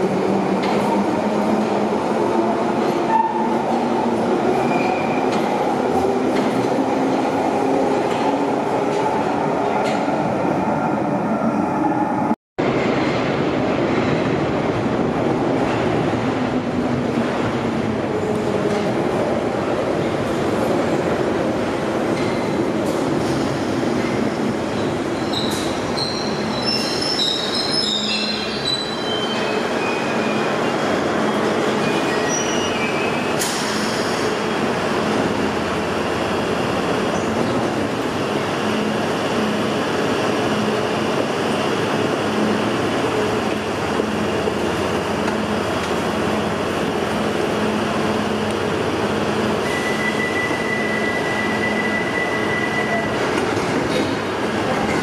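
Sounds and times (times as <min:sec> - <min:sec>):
train brakes squealing: 0:25.2 - 0:30.5, 0:49.6 - 0:53.2.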